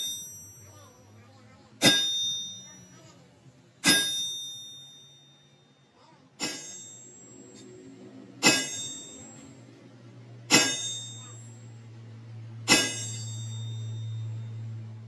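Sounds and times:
hammer blows on steel: 0:01.8 - 0:02.7, 0:03.8 - 0:04.8, 0:06.4 - 0:07.1, 0:08.4 - 0:09.4, 0:10.5 - 0:11.4, 0:12.6 - 0:14.4.

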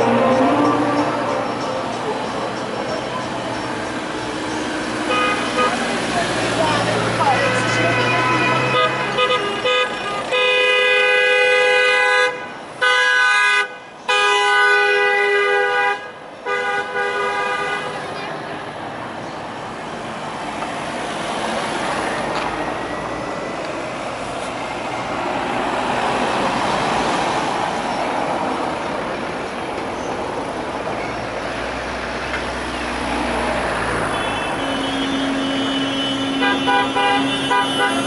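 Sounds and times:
cars driving past: 0:00.0 - 0:12.9, 0:16.7 - 0:38.0
horns tooting beeps: 0:34.0 - 0:38.0.

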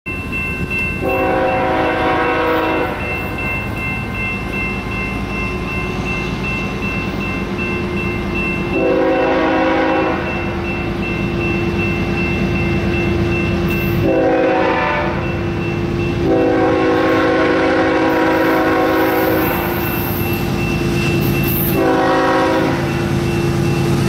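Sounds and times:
crossing bell ringing: 0:00.1 - 0:24.0
low rumble of train: 0:00.1 - 0:24.0
locomotive air horn blasts: 0:01.0 - 0:03.1, 0:08.7 - 0:10.3, 0:14.0 - 0:15.3, 0:16.2 - 0:20.2, 0:21.6 - 0:22.9.

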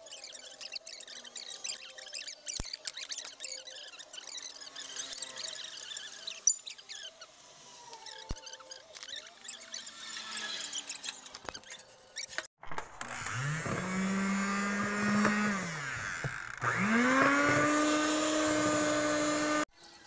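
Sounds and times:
electric hand mixer beating: 0:13.0 - 0:19.7.

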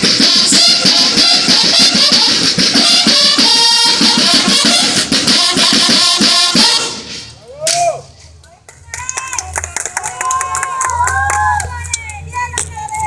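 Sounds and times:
drum and bugle band playing: 0:00.0 - 0:08.2.

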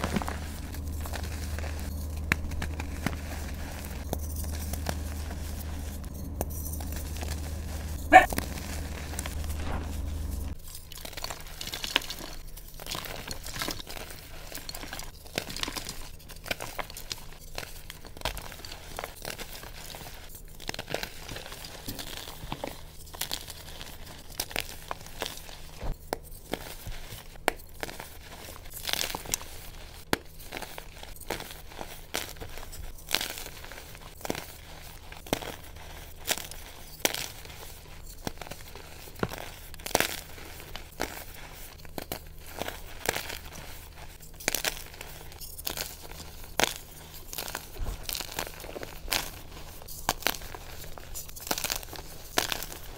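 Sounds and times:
low hum: 0:00.0 - 0:10.6
chalk crunching and crumbling: 0:00.0 - 0:52.9.

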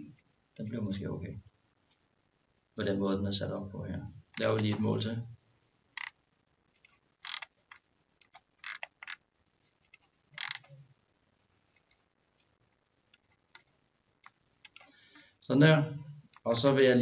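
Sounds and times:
computer mouse clicking: 0:06.0 - 0:06.2, 0:06.8 - 0:09.2, 0:09.8 - 0:10.8, 0:11.7 - 0:12.5, 0:13.1 - 0:15.2.

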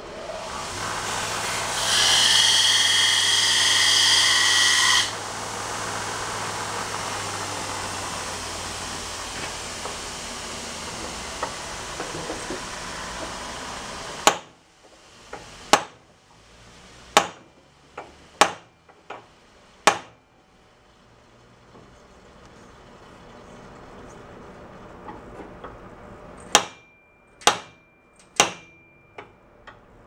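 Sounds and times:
hammer striking metal punch: 0:14.2 - 0:14.6, 0:15.7 - 0:16.0, 0:17.2 - 0:17.5, 0:18.4 - 0:19.2, 0:19.8 - 0:20.2, 0:26.4 - 0:29.4.

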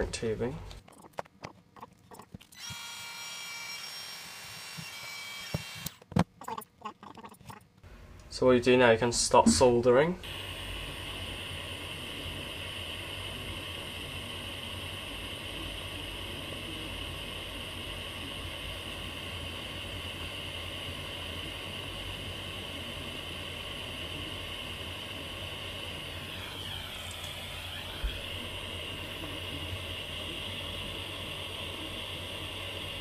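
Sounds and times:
butane soldering iron hissing: 0:02.6 - 0:06.0, 0:10.2 - 0:33.0.

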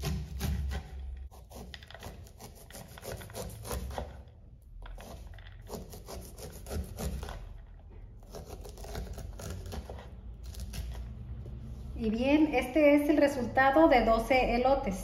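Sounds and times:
knife scraping corn: 0:00.0 - 0:11.0.

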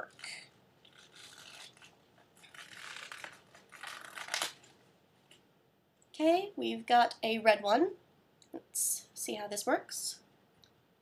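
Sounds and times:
plastic packaging crinkling: 0:00.0 - 0:04.8.

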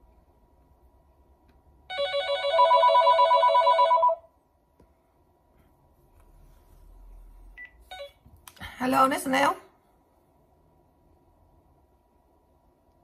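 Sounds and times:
electronic telephone ringing: 0:01.9 - 0:04.3.

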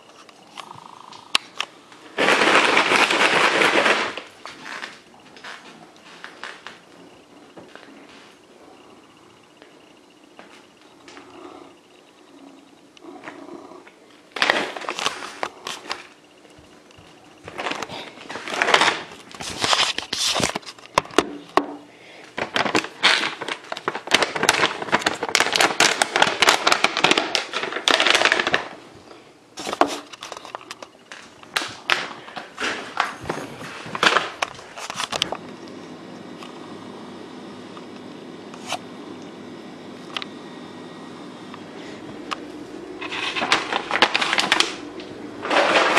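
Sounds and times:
cat purring: 0:00.4 - 0:01.4, 0:11.3 - 0:14.1
plastic bag crinkling: 0:01.4 - 0:06.8, 0:14.3 - 0:16.1, 0:17.5 - 0:21.2, 0:22.3 - 0:28.8, 0:29.6 - 0:35.5, 0:42.9 - 0:45.9.

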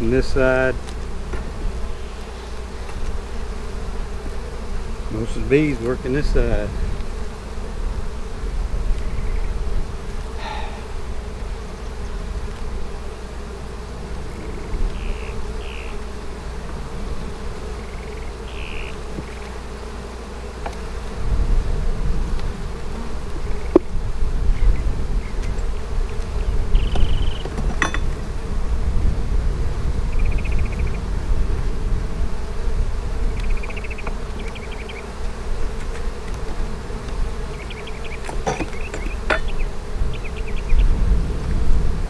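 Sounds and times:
honey bees buzzing: 0:00.0 - 0:42.0
metal hive tool clicks: 0:38.2 - 0:39.7.

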